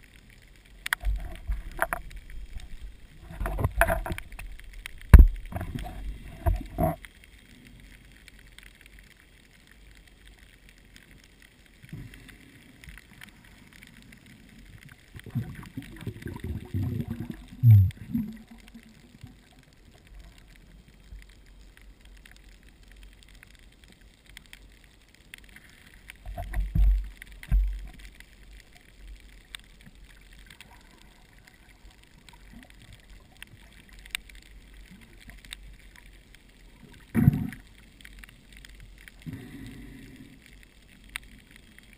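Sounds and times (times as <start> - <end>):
low gurgling rumble: 0.0 - 8.2, 12.0 - 23.3
underwater hiss: 11.8 - 19.3, 38.7 - 41.6.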